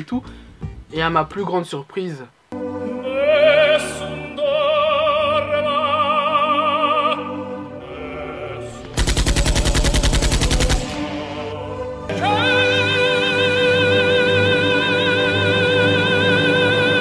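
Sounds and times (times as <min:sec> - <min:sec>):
operatic singing over music: 0:02.6 - 0:17.0
machine-gun fire: 0:09.0 - 0:11.1.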